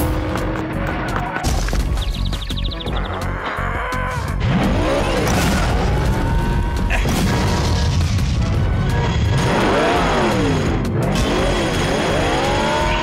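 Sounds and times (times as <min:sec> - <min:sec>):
booming impacts: 0:04.4 - 0:09.8.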